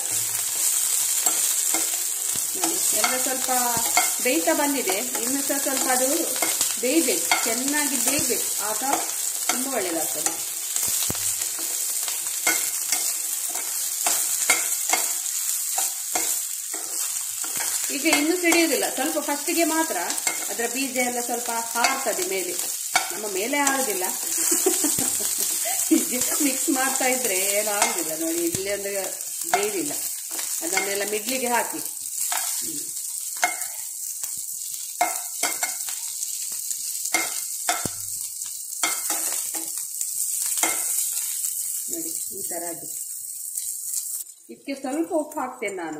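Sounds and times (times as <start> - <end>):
spatula scraping and knocking pan: 0.0 - 20.7, 21.8 - 25.6, 26.2 - 28.3, 33.3 - 33.8, 35.0 - 36.1, 37.1 - 38.0, 38.8 - 39.8
chillies sizzling in oil: 0.0 - 45.9.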